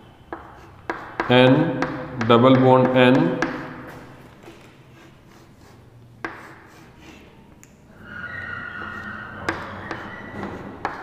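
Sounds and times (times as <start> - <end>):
chalk squeaking on blackboard: 0.3 - 2.0, 4.8 - 7.4, 8.0 - 11.0
chalk tapping on blackboard: 0.3 - 3.7, 4.9 - 7.3, 8.8 - 11.0.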